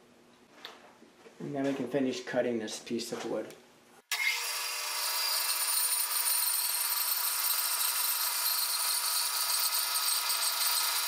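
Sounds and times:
band saw cutting wood: 4.1s - 11.0s.

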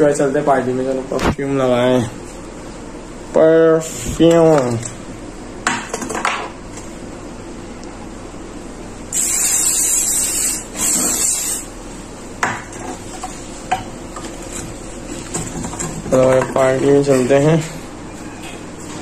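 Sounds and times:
perfume spray hiss: 9.1s - 11.7s.

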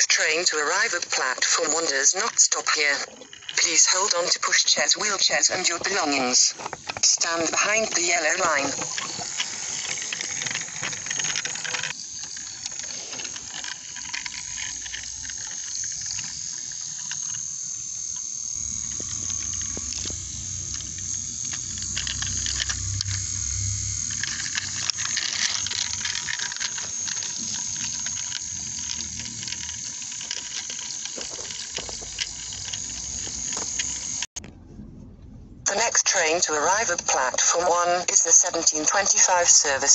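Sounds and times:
insects chirring: 0.1s - 34.3s
low hum: 0.5s - 37.4s.

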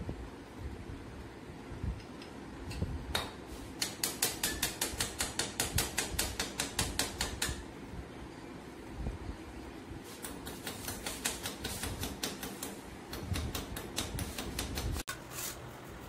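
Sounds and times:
trowel tapping on marble: 3.2s - 7.6s, 10.2s - 15.0s.

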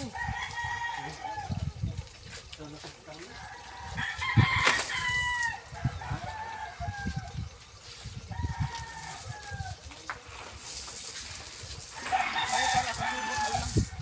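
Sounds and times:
rooster crowing: 12.0s - 13.8s.

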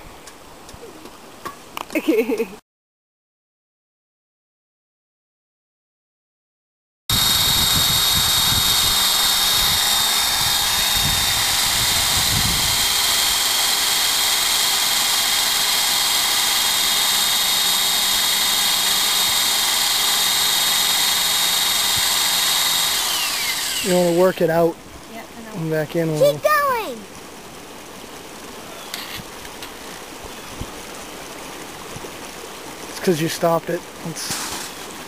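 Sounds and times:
electric drill boring into wood: 7.1s - 24.4s.

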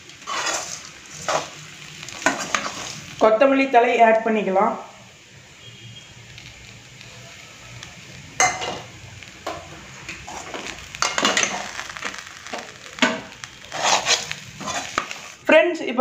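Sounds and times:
spatula scraping metal pan: 0.2s - 1.5s, 13.1s - 15.2s.

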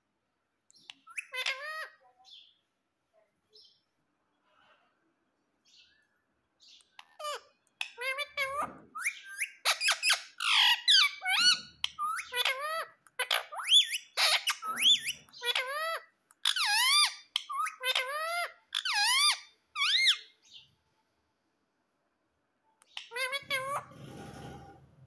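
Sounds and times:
parrot squeaky calls: 0.7s - 2.5s, 6.6s - 20.6s, 22.8s - 24.0s.

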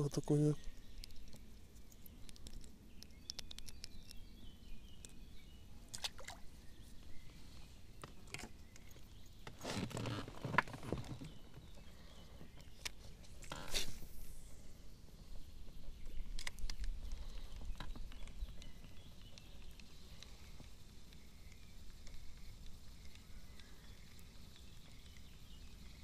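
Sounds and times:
light clicks and knocks in boat: 8.0s - 13.7s
rustling scrape: 9.5s - 11.1s.

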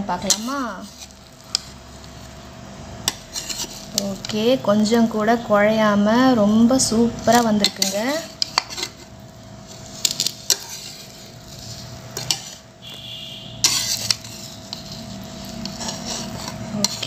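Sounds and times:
metal ladle scraping pot: 0.1s - 1.8s, 3.0s - 4.3s, 7.2s - 17.0s.

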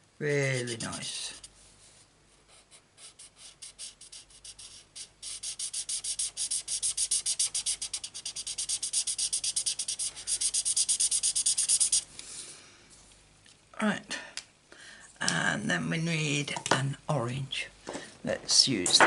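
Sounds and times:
marker rubbing on cardstock: 0.5s - 1.5s, 2.5s - 12.1s.

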